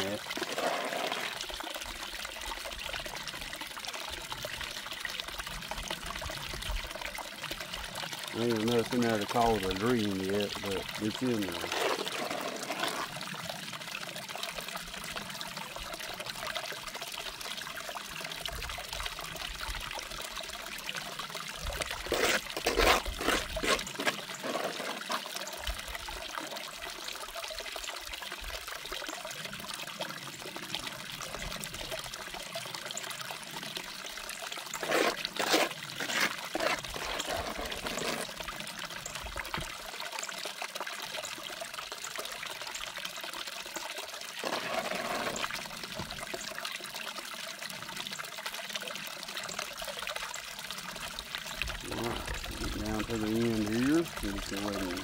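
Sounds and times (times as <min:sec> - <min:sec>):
dirt scraping and splashing: 0:00.0 - 0:01.5, 0:10.4 - 0:13.2, 0:21.6 - 0:25.5, 0:34.7 - 0:38.4, 0:44.4 - 0:45.6
water running down a sluice: 0:00.0 - 0:55.0.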